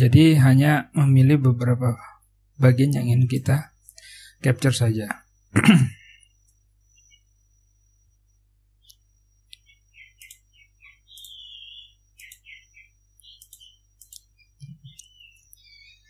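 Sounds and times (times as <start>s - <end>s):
mouse and keyboard clicks: 8.8s - 10.4s, 12.2s - 12.4s, 13.2s - 15.6s.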